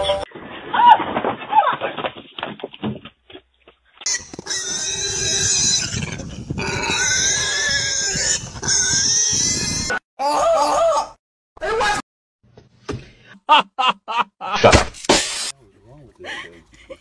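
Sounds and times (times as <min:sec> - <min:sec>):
pig squealing: 0:04.1 - 0:10.0.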